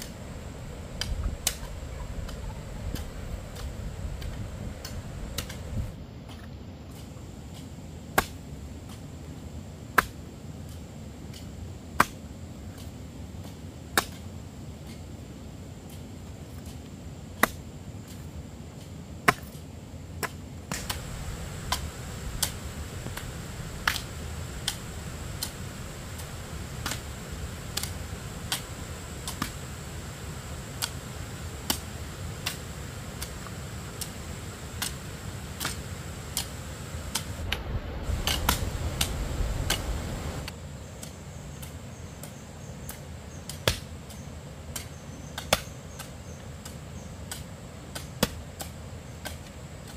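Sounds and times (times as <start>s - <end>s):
rush of low noise: 0.0s - 6.0s, 20.7s - 40.5s
sharp chopping strikes: 21.6s - 29.6s.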